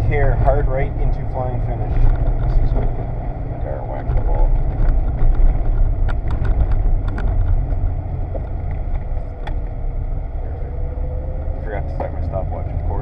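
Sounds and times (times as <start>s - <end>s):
car engine and tyres rumbling: 0.0s - 13.0s.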